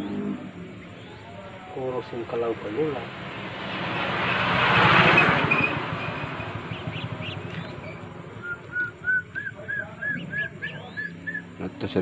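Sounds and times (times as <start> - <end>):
vehicle passing: 0.0 - 12.0
quail chicks peeping: 6.0 - 11.6.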